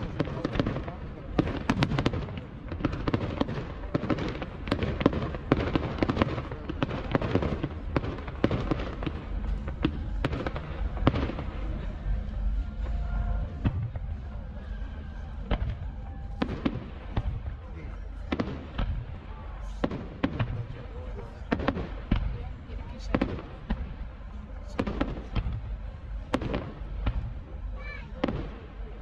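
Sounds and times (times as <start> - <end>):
fireworks bursting and banging: 0.0 - 29.0.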